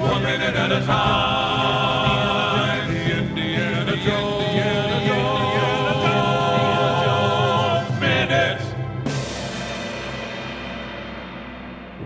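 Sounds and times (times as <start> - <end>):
voices singing in harmony: 0.0 - 9.5.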